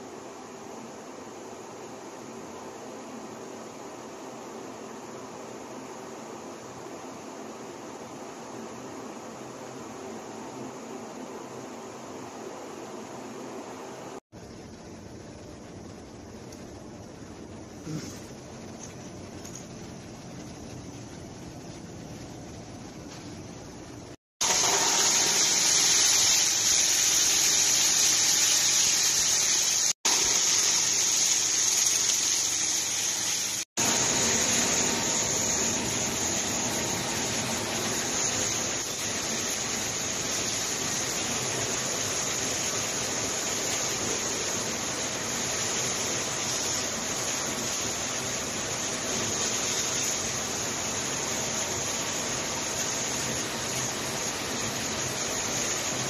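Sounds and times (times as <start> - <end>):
machines rushing hiss: 24.4 - 56.0.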